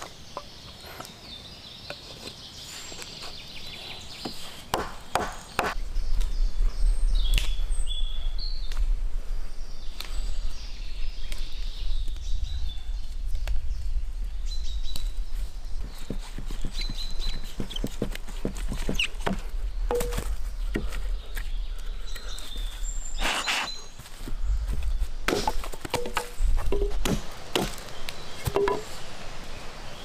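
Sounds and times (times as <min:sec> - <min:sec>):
birds chirping: 0:00.0 - 0:30.0
axe knocking on wood: 0:17.6 - 0:20.2, 0:25.3 - 0:27.8, 0:28.4 - 0:28.9.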